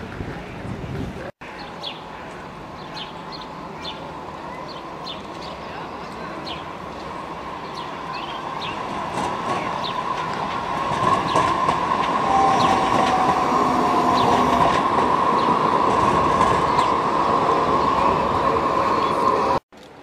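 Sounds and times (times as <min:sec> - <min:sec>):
tram running on track: 0:00.1 - 0:19.6.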